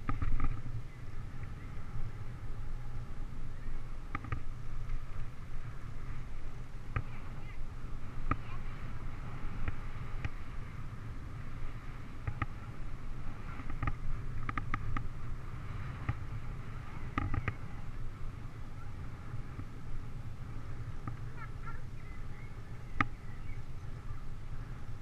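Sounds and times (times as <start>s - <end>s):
tyres rumbling on asphalt: 0.0s - 25.0s
wind: 0.0s - 25.0s
bird chirps: 22.0s - 23.7s.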